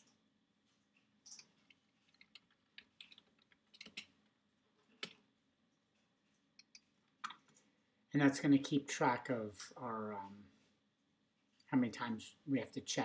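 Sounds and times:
faint keystrokes on keyboard: 0:01.2 - 0:04.1.

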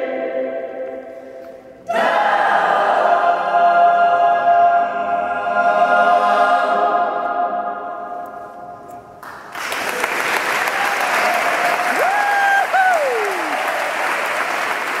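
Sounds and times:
audience applause: 0:09.2 - 0:15.0
person whooping: 0:10.8 - 0:14.0.

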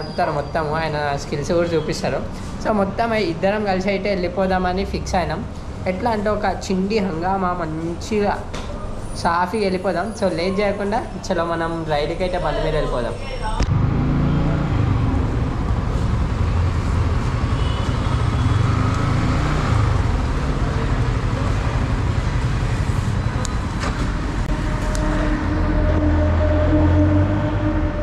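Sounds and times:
road traffic noise: 0:00.0 - 0:28.0
motorcycle engine drone: 0:13.7 - 0:28.0.

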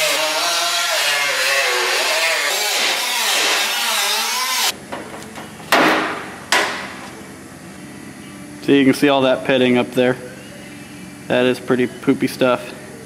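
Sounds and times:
angle grinder cutting sheet steel: 0:00.0 - 0:04.8
sharp ringing knocks: 0:04.9 - 0:07.0.

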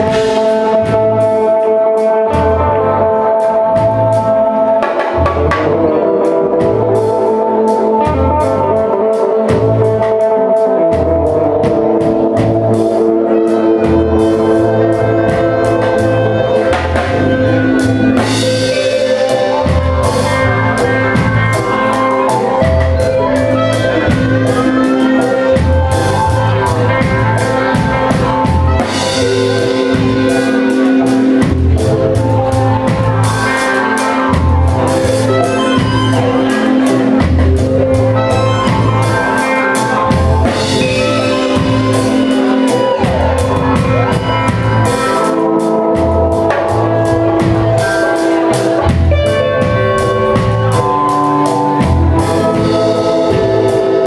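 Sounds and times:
drum kit beat: 0:00.0 - 0:54.0
pulsing bass notes: 0:00.0 - 0:54.0.

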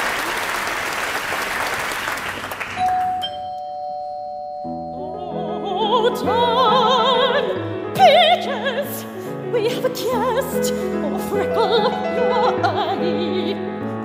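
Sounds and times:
applause: 0:00.0 - 0:03.2
piano chords: 0:02.8 - 0:14.0
operatic soprano singing: 0:04.9 - 0:14.0.

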